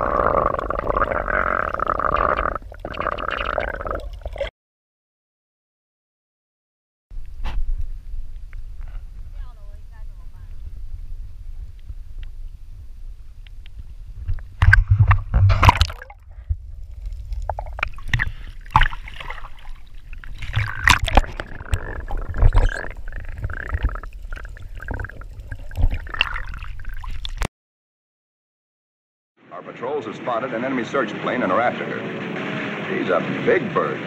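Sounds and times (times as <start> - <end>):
sea water splashing: 14.6 - 27.5.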